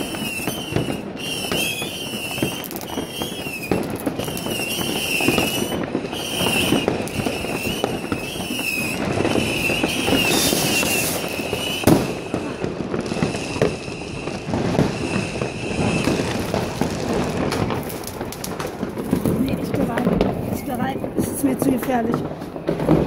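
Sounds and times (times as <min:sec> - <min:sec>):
wavering high whistle: 0:00.0 - 0:12.5
firecrackers crackling: 0:00.0 - 0:23.0
rockets bursting bangs: 0:00.0 - 0:23.0.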